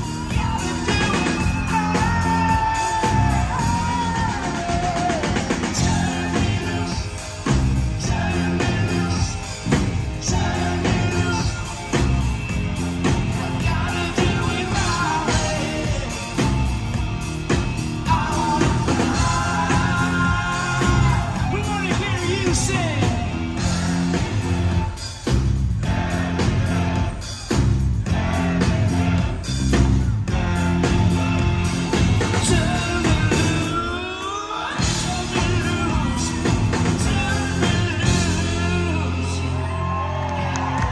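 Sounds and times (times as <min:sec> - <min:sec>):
drum beat: 0:00.0 - 0:33.8, 0:34.8 - 0:39.0
bass guitar: 0:00.0 - 0:34.1, 0:34.8 - 0:40.9
lead vocal singing: 0:00.0 - 0:40.9
live rock band: 0:00.0 - 0:40.9
person singing: 0:18.0 - 0:23.4.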